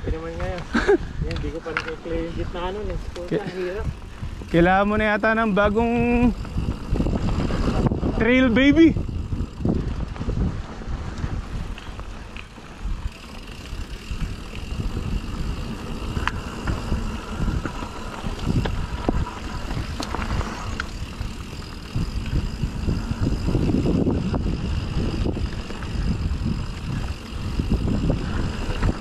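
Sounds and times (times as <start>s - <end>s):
bike clicks and knocks: 0.0s - 7.8s, 9.0s - 29.0s
bike tyres rumbling on dirt: 0.0s - 29.0s
wind on microphone: 0.0s - 29.0s.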